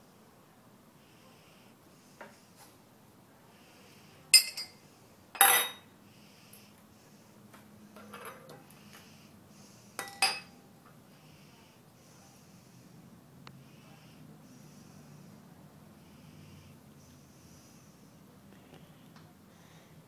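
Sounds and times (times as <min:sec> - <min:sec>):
glass clinking on stone countertop: 0:04.4 - 0:04.8, 0:05.4 - 0:05.8, 0:10.0 - 0:10.6.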